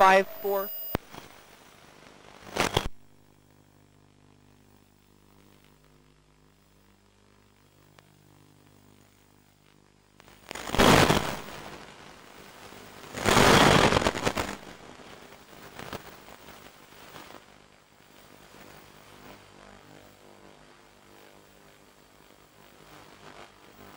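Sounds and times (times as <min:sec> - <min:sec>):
faint steady hum: 0:00.0 - 0:23.9
radio static hiss bursts: 0:00.0 - 0:23.9.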